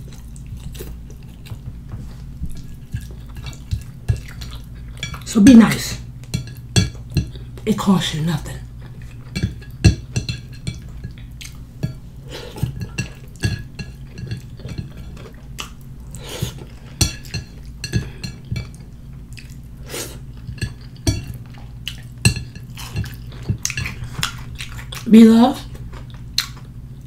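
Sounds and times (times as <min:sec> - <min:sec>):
chewing and lip smacks: 0:15.1 - 0:15.9, 0:19.3 - 0:19.7, 0:25.8 - 0:26.8.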